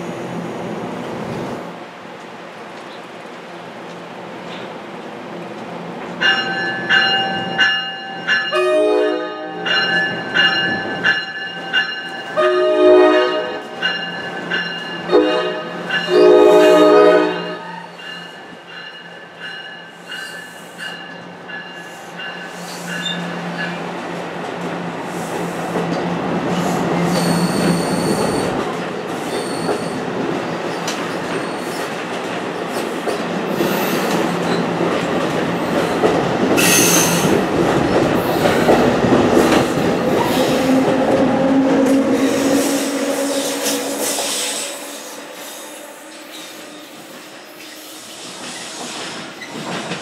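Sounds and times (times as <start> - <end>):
high-pitched wheel squeals: 27.1 - 28.5, 29.3 - 30.0
train wheels clattering over rail joints: 48.4 - 50.0.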